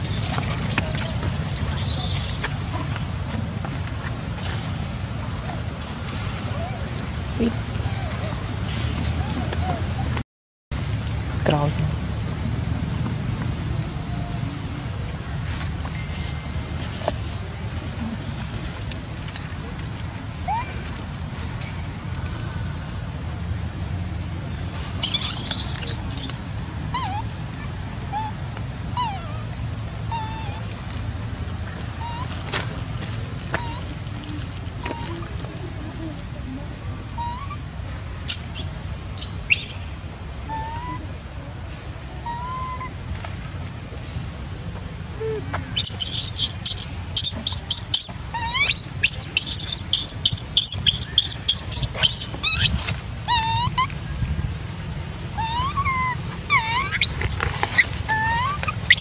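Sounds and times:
baby monkey screaming: 0:00.0 - 0:03.1, 0:20.5 - 0:20.7, 0:25.0 - 0:27.3, 0:37.2 - 0:37.6, 0:38.3 - 0:39.9, 0:40.5 - 0:41.0, 0:42.2 - 0:43.0, 0:45.2 - 0:54.0, 0:55.4 - 0:59.0
baby monkey whimpering: 0:00.0 - 0:03.1, 0:06.5 - 0:08.4, 0:09.1 - 0:10.1, 0:20.4 - 0:20.8, 0:25.0 - 0:27.3, 0:30.1 - 0:30.7, 0:32.0 - 0:32.4, 0:37.2 - 0:37.6, 0:40.5 - 0:41.1, 0:42.2 - 0:43.0, 0:45.2 - 0:53.9, 0:55.4 - 0:59.0
sharp squeal: 0:25.0 - 0:26.4, 0:58.4 - 0:59.0.

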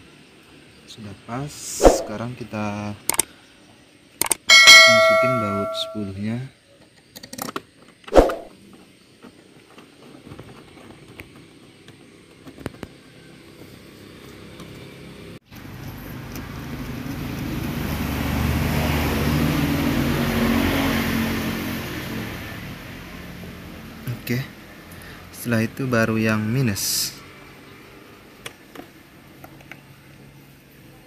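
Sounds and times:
sharp metallic clank: 0:04.5 - 0:06.2, 0:08.2 - 0:08.5
passing vehicle engine: 0:13.3 - 0:28.4.

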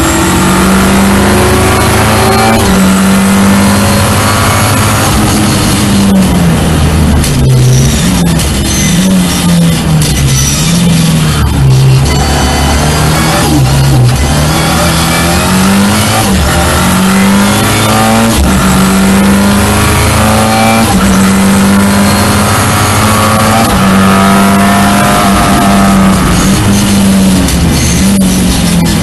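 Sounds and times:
car engine accelerating hard: 0:00.0 - 0:29.0
gear upshifts: 0:00.0 - 0:29.0.

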